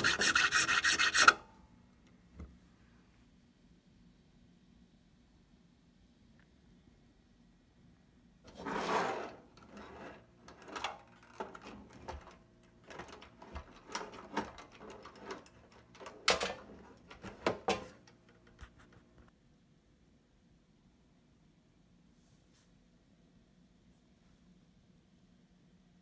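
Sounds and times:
rustling scrape: 0.0 - 1.4, 8.5 - 12.2.

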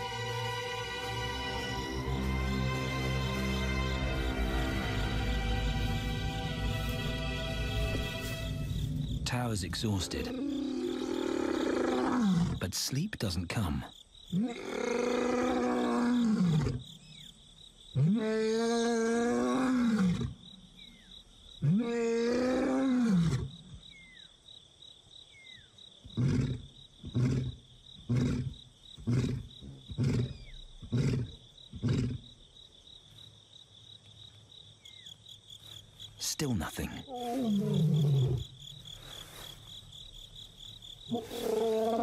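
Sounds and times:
lion grunting: 9.7 - 12.8, 26.0 - 32.3, 36.6 - 38.6, 41.1 - 42.0
lion roaring: 10.0 - 12.6, 14.4 - 16.8, 18.0 - 20.4, 21.6 - 23.5, 26.1 - 32.2, 37.1 - 38.5, 41.1 - 42.0.

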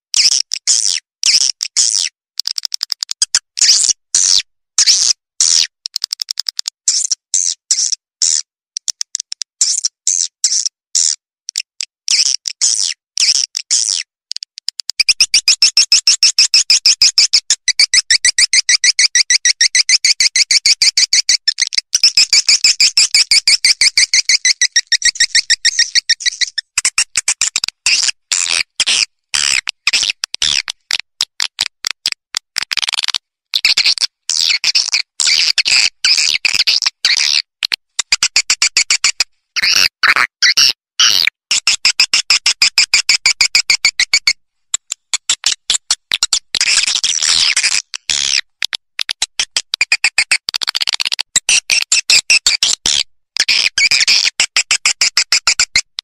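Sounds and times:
rapid bird chirps: 15.0 - 30.9, 33.6 - 37.4.

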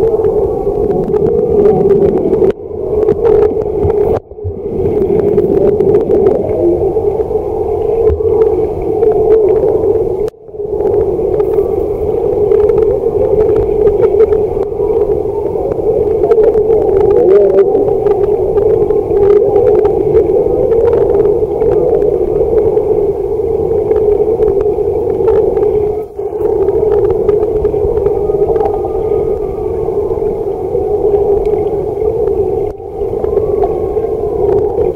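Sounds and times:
faint underwater clicks: 0.0 - 34.9
muffled underwater drone: 0.0 - 34.9.

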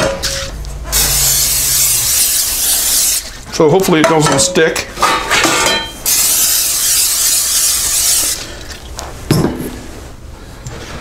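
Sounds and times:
aerosol can spraying hiss: 1.0 - 3.3, 6.1 - 8.4.

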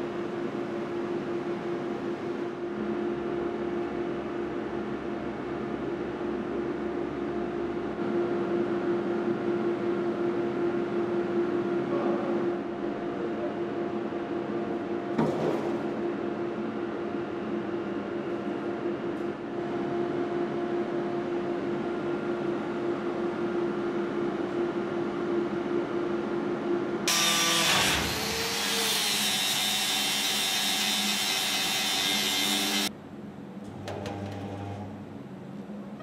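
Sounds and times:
spot welder clicks and buzz: 27.1 - 32.9, 33.6 - 35.0.

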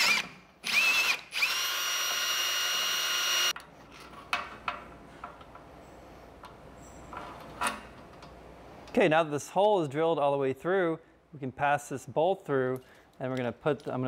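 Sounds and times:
cordless drill whining: 0.0 - 3.5.

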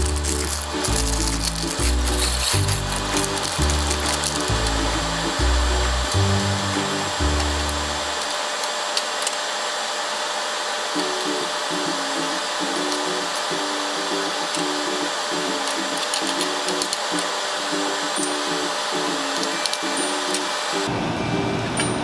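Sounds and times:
background music: 0.0 - 8.2, 14.2 - 22.0
onion sizzling in oil: 0.0 - 20.8.

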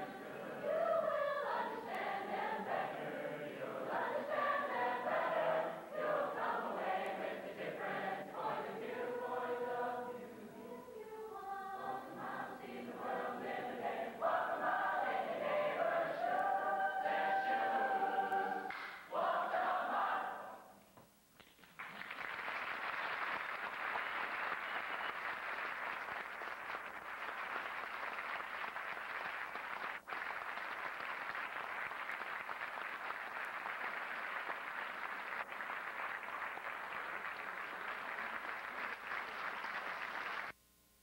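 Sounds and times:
audience applauding: 21.5 - 40.6.

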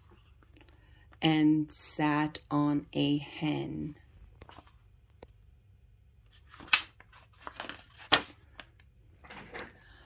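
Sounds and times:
book page turning: 4.3 - 4.9, 6.3 - 8.8.

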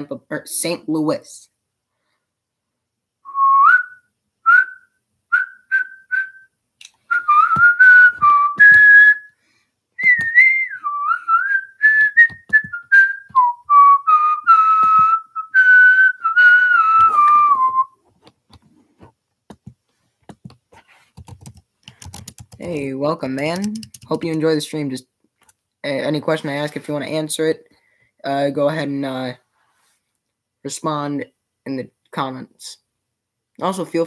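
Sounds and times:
person whistling a tune: 3.2 - 6.5, 7.1 - 9.4, 10.0 - 18.0.

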